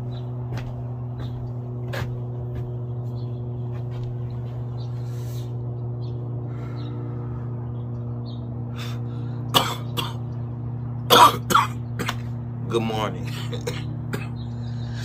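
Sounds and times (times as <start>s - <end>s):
steady low hum: 0.0s - 15.0s
man clearing throat and coughing: 9.5s - 10.3s, 11.1s - 12.3s, 13.2s - 14.4s.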